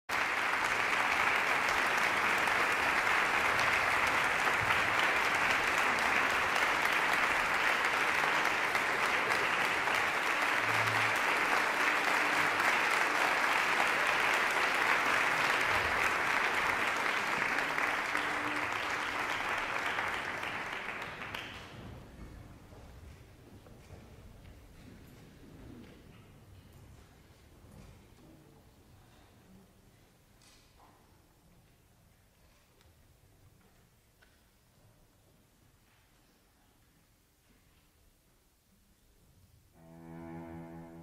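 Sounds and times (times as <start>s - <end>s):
audience applauding: 0.1s - 22.1s.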